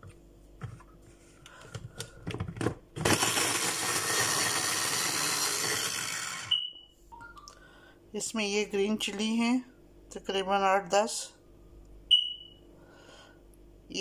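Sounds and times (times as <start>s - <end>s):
mini chopper motor running: 3.0s - 6.6s.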